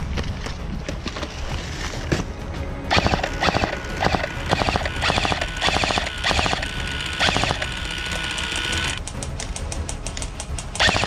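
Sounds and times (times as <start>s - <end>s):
airsoft machine gun bursts: 2.9s - 9.0s, 10.8s - 11.0s.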